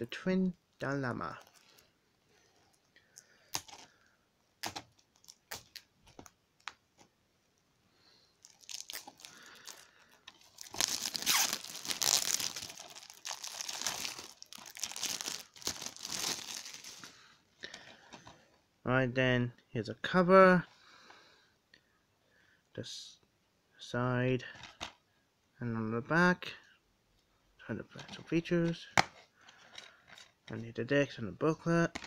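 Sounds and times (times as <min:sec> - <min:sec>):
plastic wrap tearing and crinkling: 0:04.6 - 0:06.8, 0:08.4 - 0:17.2.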